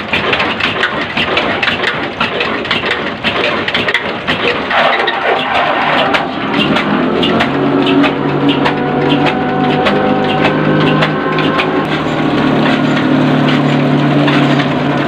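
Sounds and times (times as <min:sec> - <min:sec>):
diesel engine humming: 0:00.0 - 0:15.0
grinding mill rattling: 0:00.0 - 0:15.0
sharp clicks: 0:00.2 - 0:12.0.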